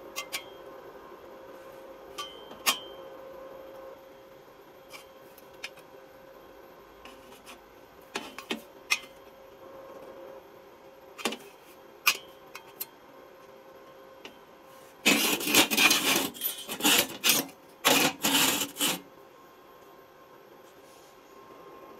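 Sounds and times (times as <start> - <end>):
metal-on-metal scraping and rattling: 15.0 - 19.0.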